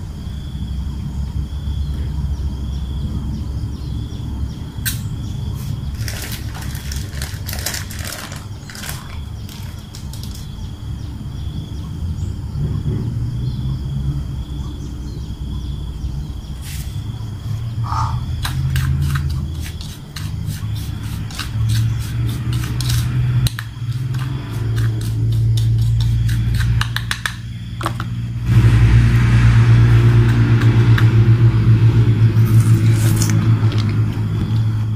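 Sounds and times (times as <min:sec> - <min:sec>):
spoon clicking on plastic plate: 0:25.6 - 0:28.0
low rumble: 0:28.0 - 0:34.9.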